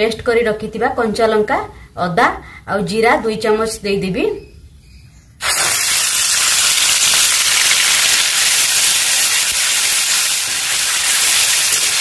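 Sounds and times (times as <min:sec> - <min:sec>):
paste sizzling in hot oil: 0:05.4 - 0:12.0.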